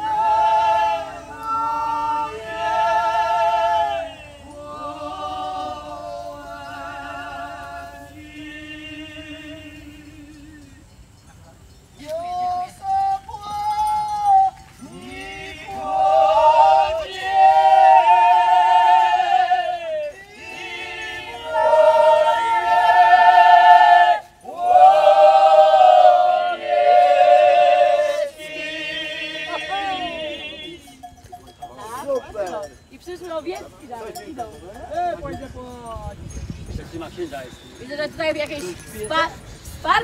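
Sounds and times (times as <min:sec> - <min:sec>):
group singing folk song unaccompanied: 0:00.0 - 0:10.9, 0:12.0 - 0:31.2.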